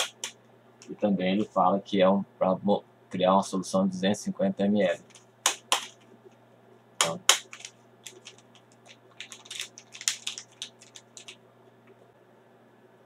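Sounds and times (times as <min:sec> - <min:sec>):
foil sachet crinkling: 0:07.2 - 0:11.4.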